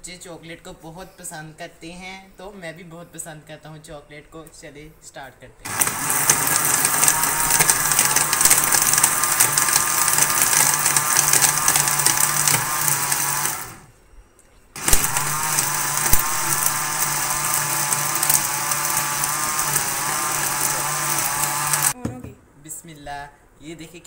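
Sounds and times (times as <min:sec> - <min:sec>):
blender motor whine: 0:05.7 - 0:13.9, 0:14.8 - 0:22.0.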